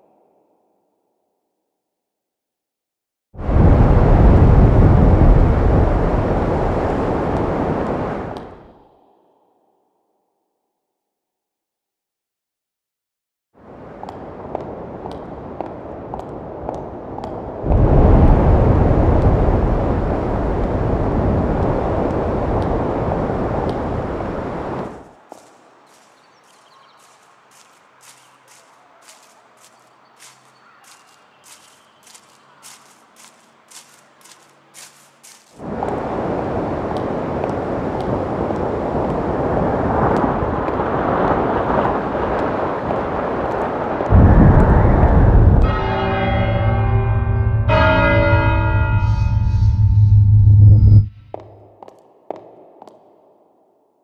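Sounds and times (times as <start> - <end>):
loud rushing rumble: 44.1 - 51.1
high-heel footsteps on concrete: 51.3 - 53.2.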